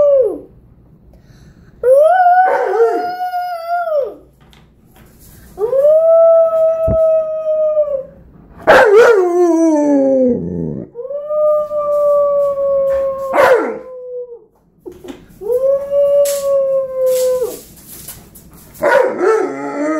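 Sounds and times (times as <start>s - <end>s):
dog howling: 1.8s - 4.2s, 5.6s - 14.5s, 15.4s - 17.6s.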